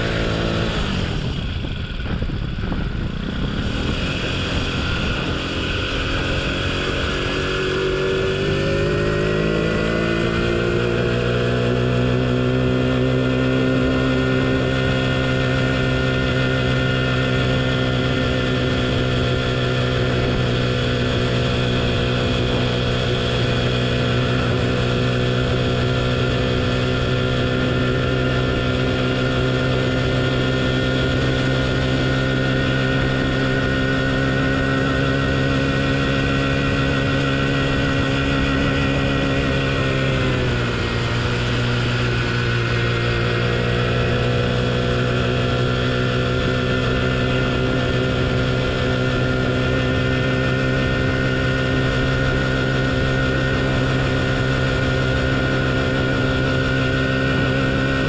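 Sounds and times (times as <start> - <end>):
small motorbike engine revving: 0.0 - 58.0.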